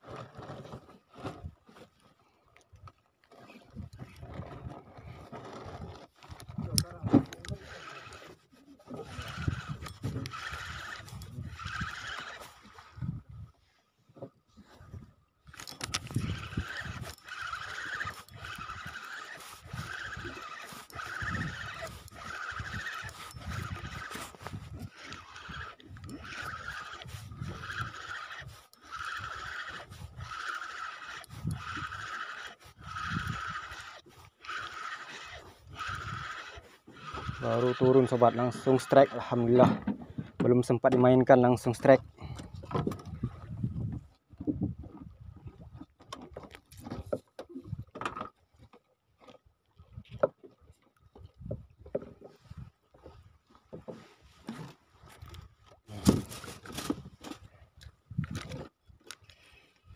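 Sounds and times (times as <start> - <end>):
fishing reel gears whirring: 5.4 - 13.2, 15.5 - 39.6
water slapping boat hull: 15.8 - 40.4.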